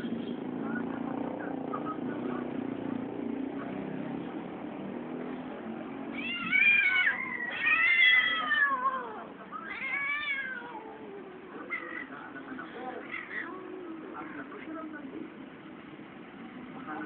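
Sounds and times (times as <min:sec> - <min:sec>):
cat yowling: 0:06.1 - 0:12.1.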